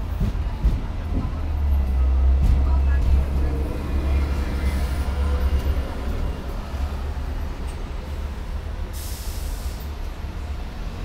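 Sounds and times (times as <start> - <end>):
street traffic: 0.0 - 11.0
tram rumbling: 0.0 - 11.0
brief hiss: 8.9 - 10.0.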